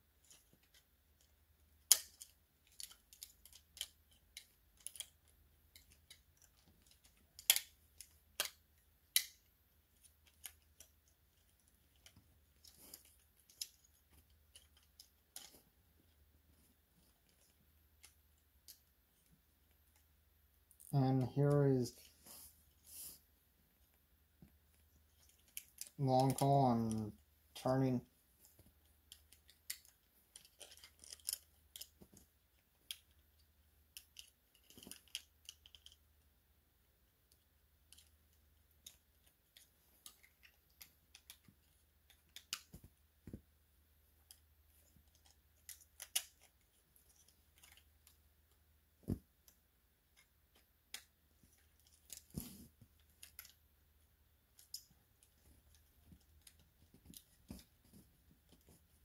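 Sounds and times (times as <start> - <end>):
plastic toy parts clicking: 0.2 - 15.6, 25.1 - 27.2, 28.9 - 32.1, 32.8 - 36.1, 37.3 - 42.8, 44.2 - 48.2, 49.4 - 52.4, 53.0 - 53.7, 54.5 - 57.7.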